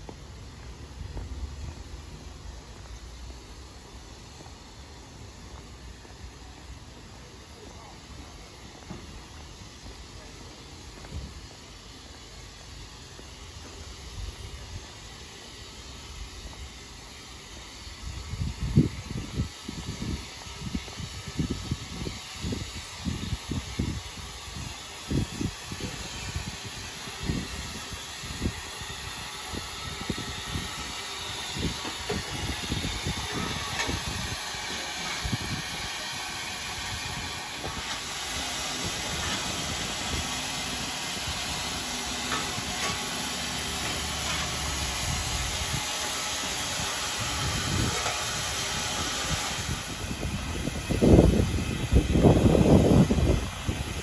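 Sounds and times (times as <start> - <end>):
steam locomotive hissing: 0.0 - 54.0.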